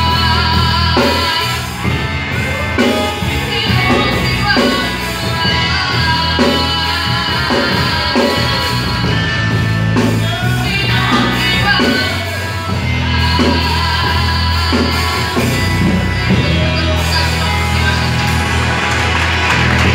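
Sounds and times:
electronic keyboard with bass notes: 0.0 - 19.9
girl singing into a microphone: 10.0 - 16.0.

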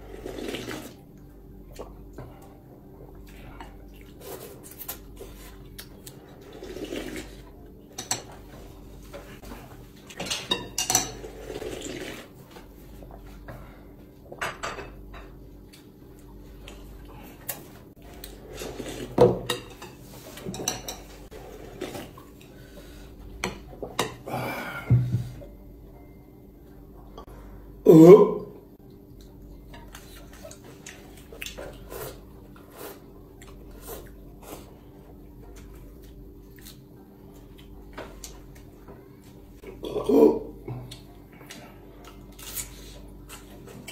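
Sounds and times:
slurping noodles: 0.0 - 1.0, 4.2 - 7.6, 11.2 - 12.5, 18.2 - 19.2, 21.3 - 22.6.

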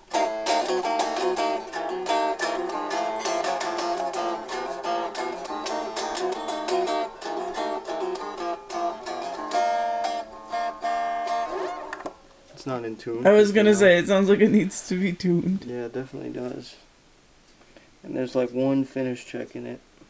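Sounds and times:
out of tune electric guitar notes: 0.0 - 12.2.

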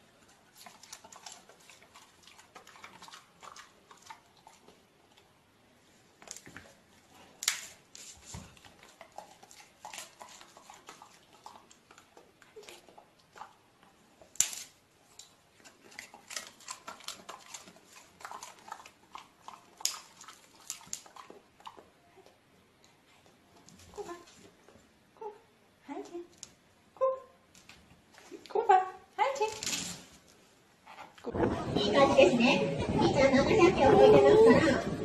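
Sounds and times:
dogs chewing treats: 0.0 - 5.3, 6.4 - 14.3, 15.0 - 22.0.

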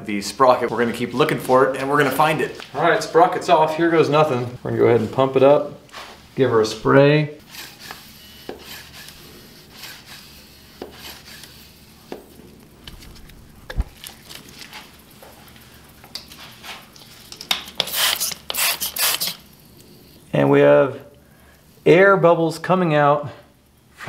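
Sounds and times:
spray bottle squirting: 7.4 - 20.2
small clicks and knocks: 12.0 - 18.6.

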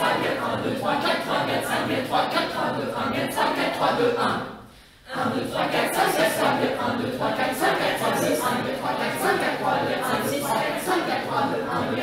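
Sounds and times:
vocal ensemble chanting: 0.0 - 12.0.

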